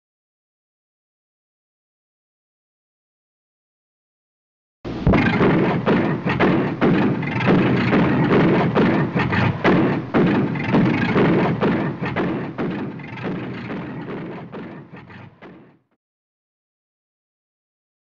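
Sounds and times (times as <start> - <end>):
percussive loud thuds: 5.0 - 15.8.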